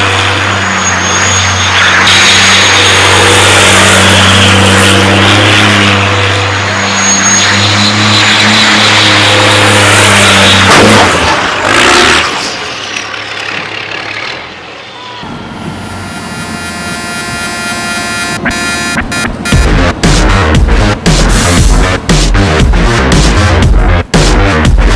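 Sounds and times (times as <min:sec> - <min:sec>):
tyres spinning on tarmac: 0:00.0 - 0:15.7
diesel engine at high revs: 0:00.0 - 0:24.9.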